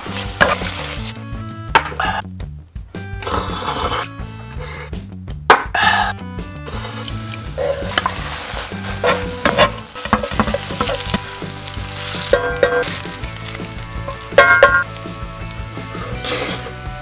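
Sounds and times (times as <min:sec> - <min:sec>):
fried rice sizzling in a pan: 0:00.0 - 0:01.1, 0:06.6 - 0:17.0
spatula scraping pan bottom: 0:00.0 - 0:01.1, 0:06.7 - 0:14.9
soft background music: 0:00.0 - 0:17.0.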